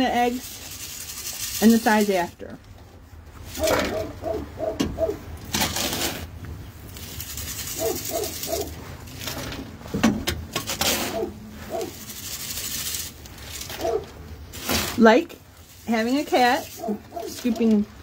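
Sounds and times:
rake scraping through sand: 0.0s - 2.3s, 3.4s - 4.1s, 5.6s - 9.8s, 10.5s - 17.9s
hen clucking: 3.6s - 5.2s.

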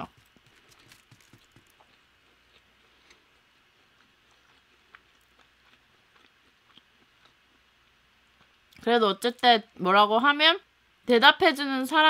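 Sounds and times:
chewing mouth clicks: 3.8s - 7.4s.

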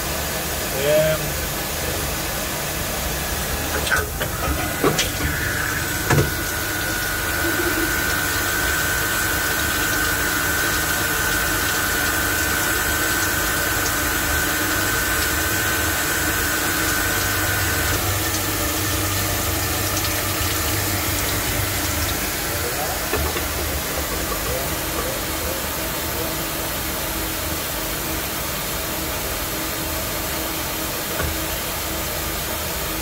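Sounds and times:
lathe machine hum and hiss: 0.0s - 33.0s.

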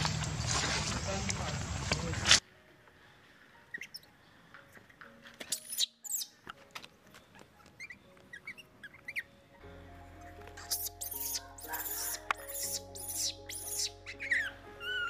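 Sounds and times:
baby monkeys squeaking: 3.7s - 4.1s, 5.4s - 6.4s, 7.3s - 9.3s, 10.6s - 15.0s.

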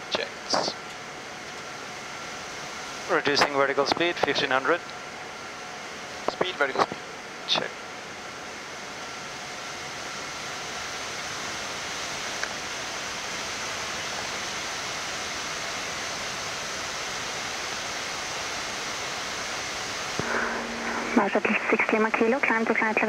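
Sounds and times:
rushing airflow noise: 17.4s - 22.4s.

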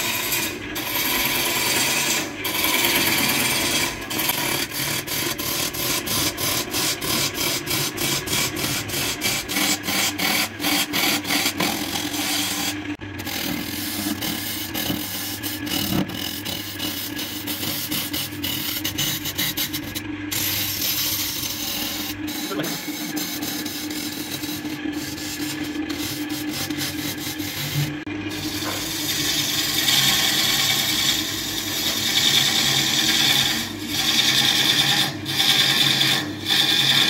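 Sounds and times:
chisel scraping spinning wood: 0.0s - 37.0s
lathe motor hum: 0.0s - 37.0s.

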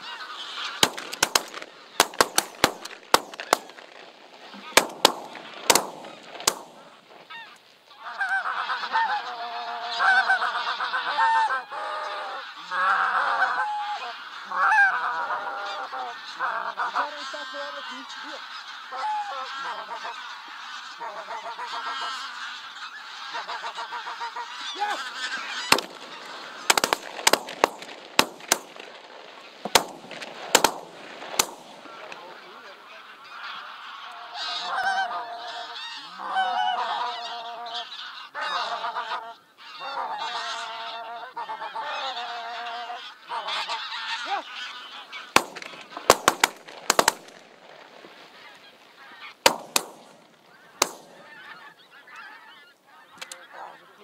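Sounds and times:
geese honking: 0.0s - 54.0s
sharp cracks: 0.2s - 7.8s, 24.6s - 32.8s, 44.5s - 52.3s, 53.2s - 53.4s.

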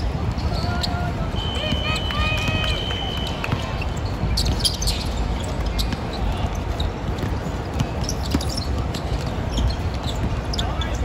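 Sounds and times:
ball bouncing on a court: 1.5s - 10.9s
short sharp squeaks: 3.2s - 7.0s, 8.0s - 11.0s.

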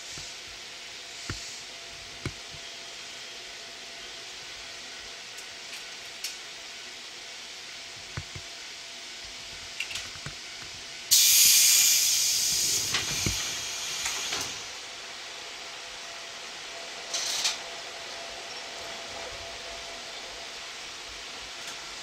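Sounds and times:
compressed air venting hiss: 0.0s - 1.9s, 11.1s - 15.0s.

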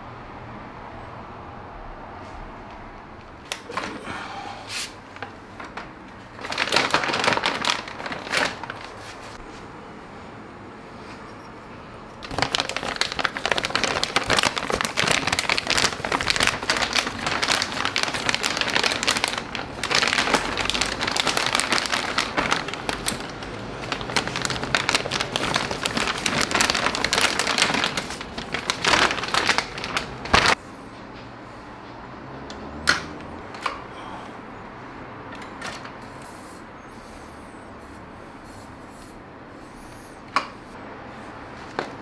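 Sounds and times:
plastic bag crinkling: 5.1s - 9.4s, 12.2s - 30.6s.

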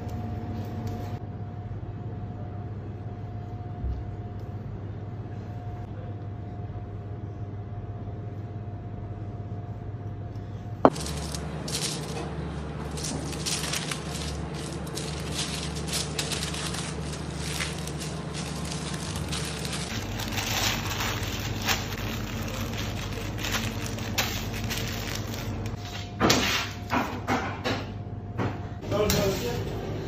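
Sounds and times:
kitchen hum: 10.2s - 30.0s
parchment paper crinkling: 10.9s - 25.8s.

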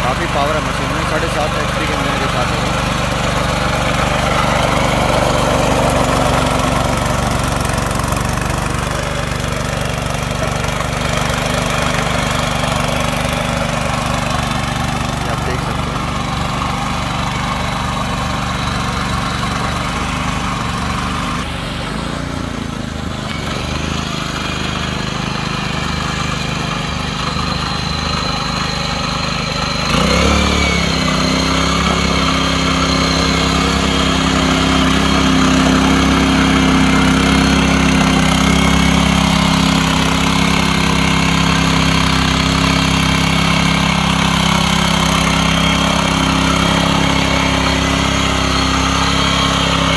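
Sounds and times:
tiller petrol engine running: 0.0s - 49.9s.

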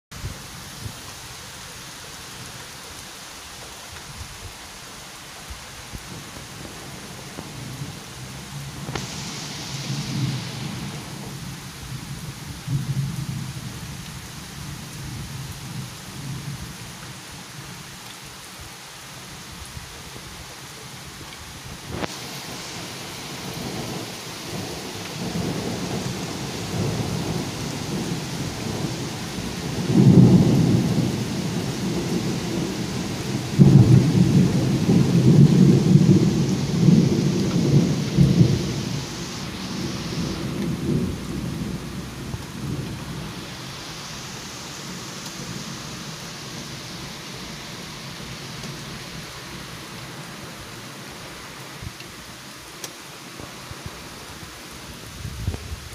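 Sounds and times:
rain hissing: 0.1s - 55.9s
thunder rumbling: 5.9s - 13.8s, 21.8s - 49.6s.

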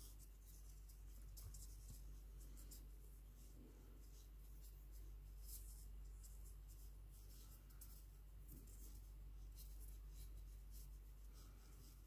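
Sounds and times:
thread and needle rustling yarn: 0.0s - 12.0s.

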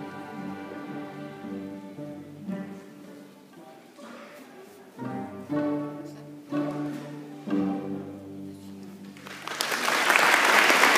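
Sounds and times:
string orchestra chords: 0.0s - 3.8s, 4.9s - 9.2s
audience applause: 9.2s - 10.9s.

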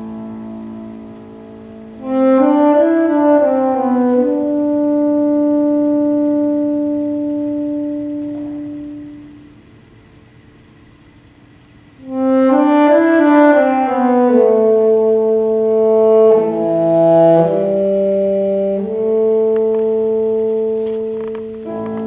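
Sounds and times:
saxophone long held notes: 0.0s - 10.0s, 11.9s - 22.0s.

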